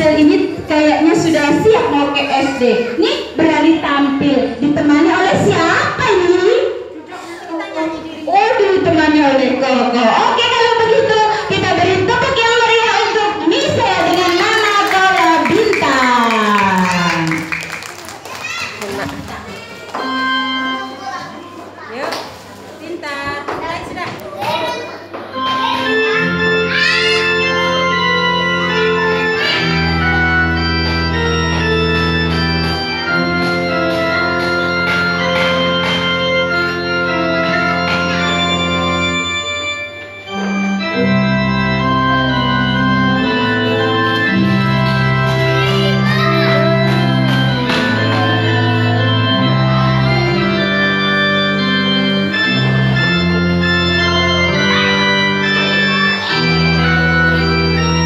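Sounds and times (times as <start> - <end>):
electronic keyboard melody: 19.6 - 21.8, 25.2 - 58.0.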